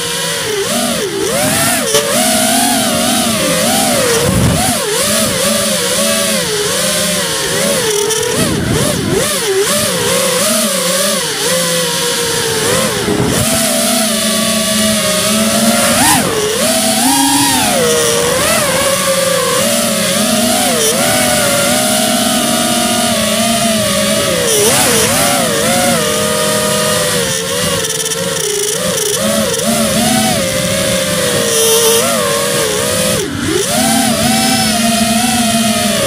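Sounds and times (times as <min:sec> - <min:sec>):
drone motors and propellers buzzing: 0:00.0 - 0:36.0.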